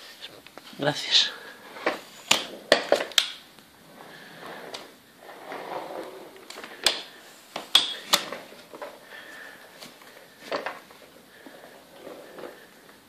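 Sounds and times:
suitcase rustling and scraping on wood: 3.8s - 13.0s.

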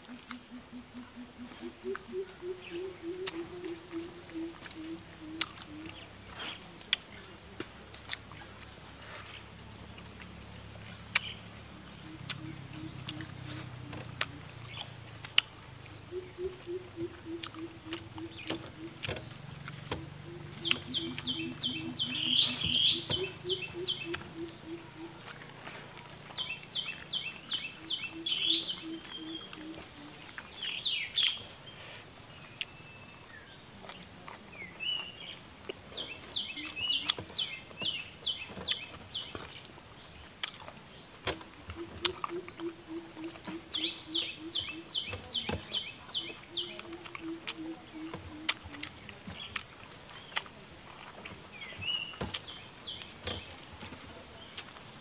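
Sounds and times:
high insect drone: 0.0s - 55.0s
chewing clicks: 3.1s - 6.0s, 11.1s - 11.4s, 12.2s - 21.8s, 40.4s - 40.8s, 41.4s - 42.8s, 48.3s - 51.2s
birds calling: 15.9s - 25.7s, 26.4s - 31.5s, 41.2s - 49.6s.

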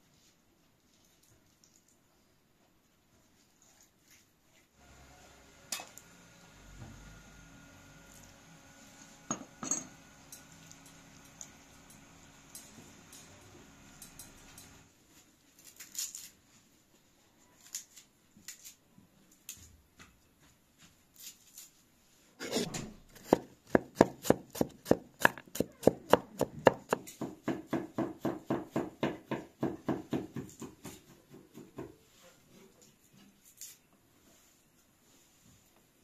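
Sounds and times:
knife chopping on wooden board: 22.4s - 31.9s.

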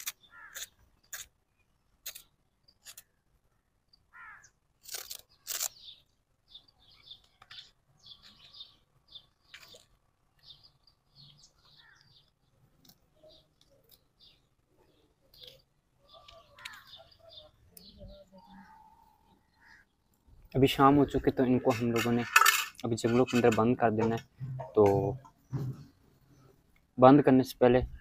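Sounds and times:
faint bird chirps: 1.5s - 20.4s.

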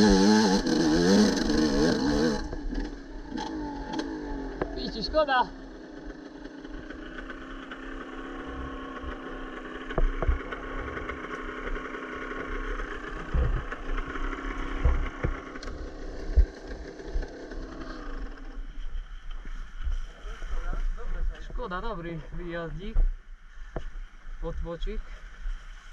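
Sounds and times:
vehicle engine running: 0.0s - 22.4s
low thumps: 13.2s - 17.5s.

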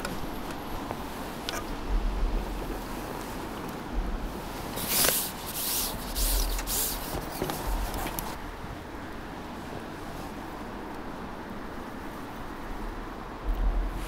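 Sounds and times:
dull low bumps: 0.0s - 4.8s, 6.0s - 8.4s, 12.8s - 14.0s
hissing scrapes: 4.7s - 8.4s.

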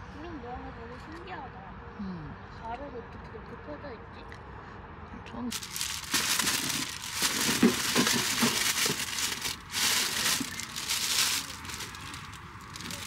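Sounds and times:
bags rustling and crinkling: 5.5s - 13.0s
small clicks and crackles: 5.5s - 13.0s.

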